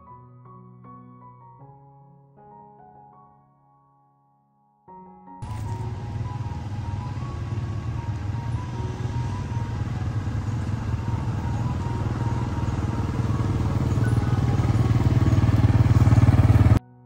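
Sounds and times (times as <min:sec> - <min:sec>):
small motorcycle engine running: 0:05.4 - 0:16.8.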